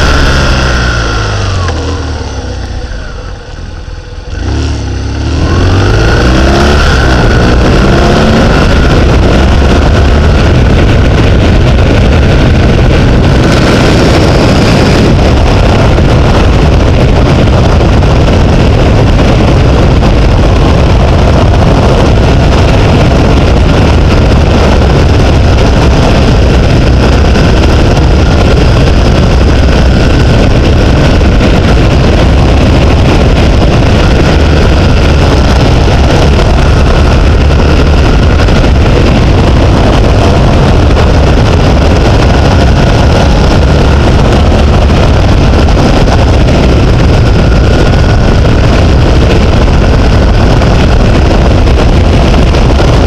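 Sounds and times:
vehicle rumbling on road: 0.0s - 53.0s
wind buffeting microphone: 0.0s - 53.0s.

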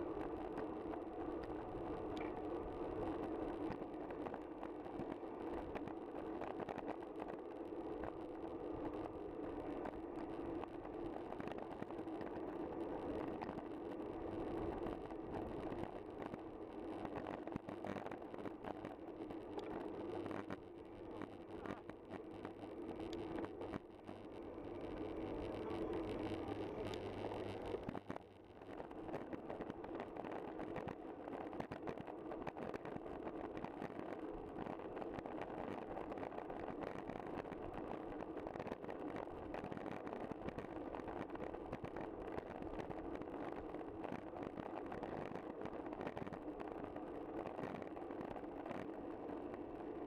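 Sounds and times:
low hum: 18.5s - 31.4s.

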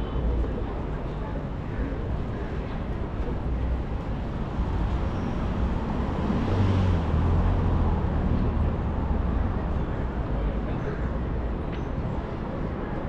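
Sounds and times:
vehicle passing by: 5.4s - 9.2s.

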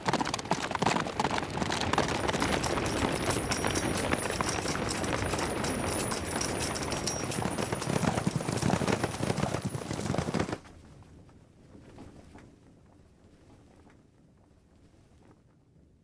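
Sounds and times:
hooves clattering: 0.0s - 10.7s
running feet: 1.4s - 10.6s
armour and weapons rattling: 1.9s - 10.6s.

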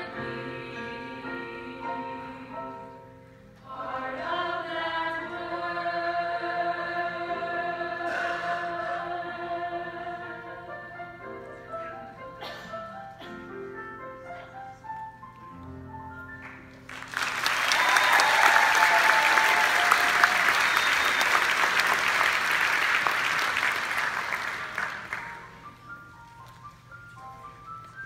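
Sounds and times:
piano playing: 0.0s - 17.5s, 18.6s - 28.0s
audience applauding: 16.8s - 25.6s.

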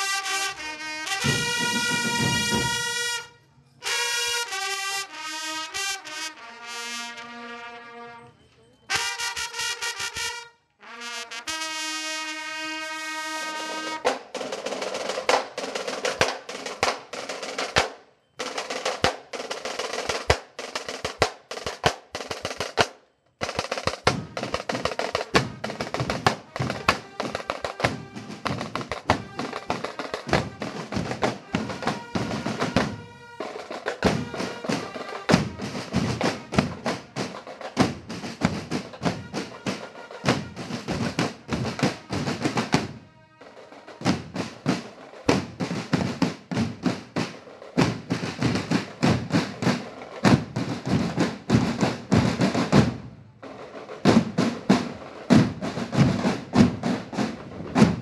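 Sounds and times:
snare drum rolls: 1.1s - 3.0s, 13.6s - 58.0s.

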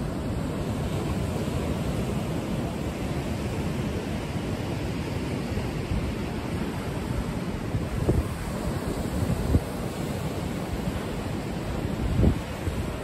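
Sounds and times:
ocean surf breaking: 0.0s - 13.0s
wind buffeting microphone: 5.4s - 13.0s.

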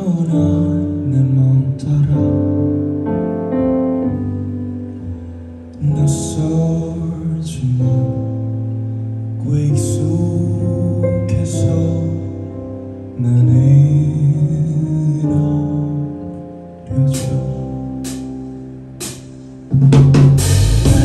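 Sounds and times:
man singing into microphone: 0.0s - 3.0s, 5.8s - 8.6s, 9.3s - 18.0s
instrumental accompaniment: 15.2s - 21.0s.

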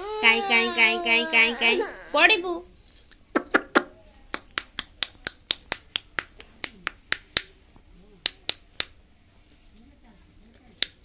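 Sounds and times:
hand snaps: 3.4s - 7.6s, 8.2s - 9.0s.

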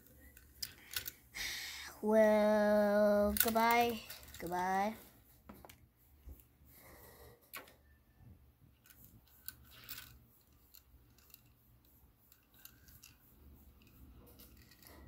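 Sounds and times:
toy trains clicking on wood: 0.0s - 1.2s, 2.2s - 5.0s, 8.8s - 15.0s.

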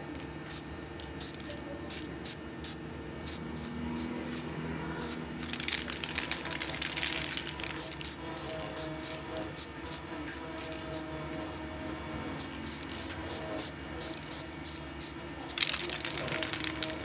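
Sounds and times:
spray can puffs: 5.0s - 11.0s, 12.4s - 17.0s.

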